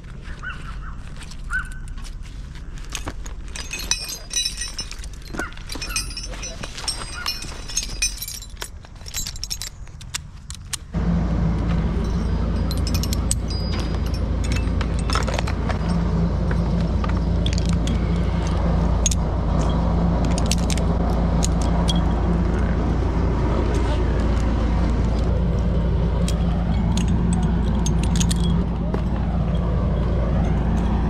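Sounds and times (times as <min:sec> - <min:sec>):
climbing hardware clinking: 0:01.0 - 0:31.0
steady low drone: 0:10.9 - 0:31.0.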